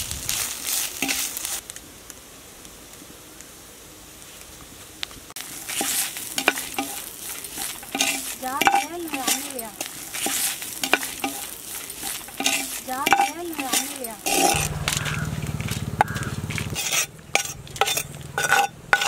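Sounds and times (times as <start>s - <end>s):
metal spatula scraping clay pot: 1.0s - 1.4s, 5.6s - 15.1s, 16.0s - 19.0s.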